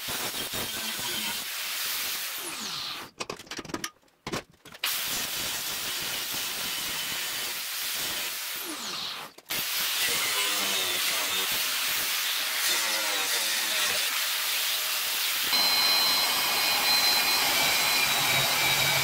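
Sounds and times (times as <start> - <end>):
angle grinder cutting steel: 0.1 - 1.5, 5.5 - 19.0.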